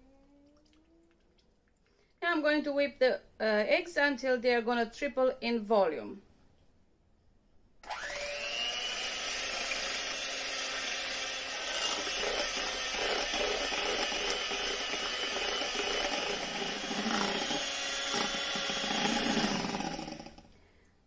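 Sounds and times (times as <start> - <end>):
electric hand mixer whirring: 7.8 - 20.5.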